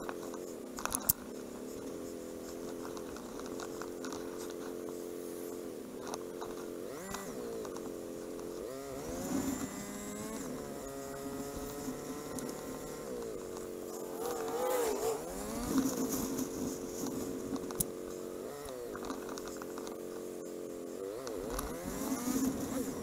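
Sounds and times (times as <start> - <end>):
motorcycle engine revving: 0.0 - 23.0.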